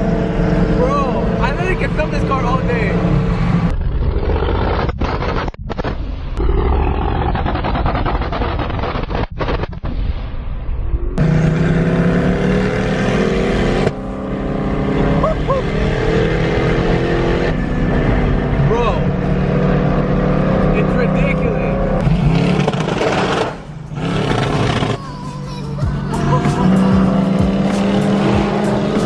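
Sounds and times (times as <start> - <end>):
loud car engine and exhaust: 0.0 - 3.7, 11.2 - 29.0.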